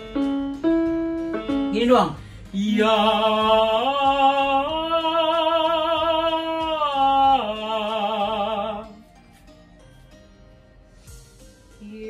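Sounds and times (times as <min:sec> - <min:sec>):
man singing vocal exercise: 0:02.5 - 0:08.9.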